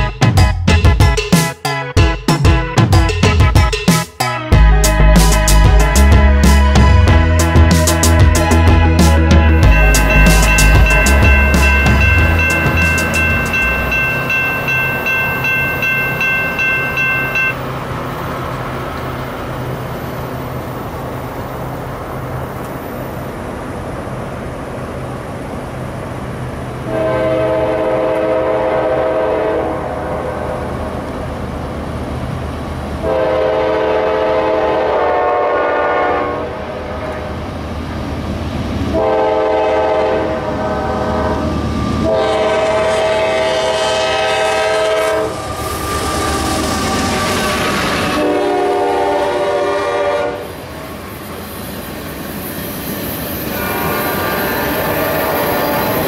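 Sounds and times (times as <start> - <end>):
train rumble: 4.6 - 56.0
quickly repeated ringing: 9.6 - 17.6
locomotive air horn blasts: 26.9 - 30.7, 33.0 - 37.4, 38.9 - 50.6, 53.5 - 56.0.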